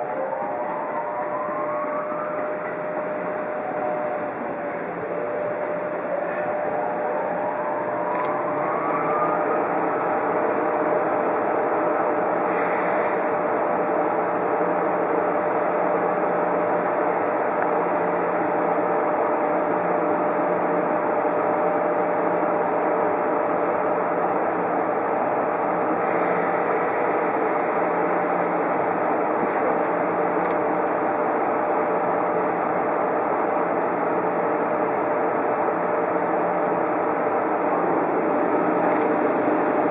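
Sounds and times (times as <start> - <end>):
locomotive machinery whirring hum: 0.0 - 39.9
air hissing: 12.4 - 13.3.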